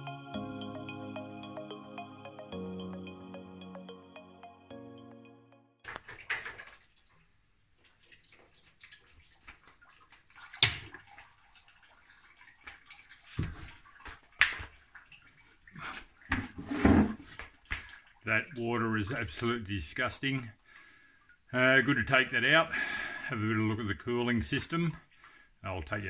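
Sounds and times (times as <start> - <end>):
liquid trickling into plastic tub: 5.8 - 18.5.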